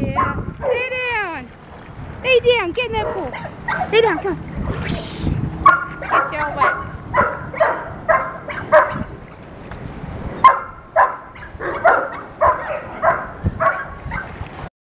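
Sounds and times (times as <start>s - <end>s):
dog barking: 0.1s - 0.9s, 3.0s - 4.0s, 5.6s - 9.1s, 10.4s - 14.4s.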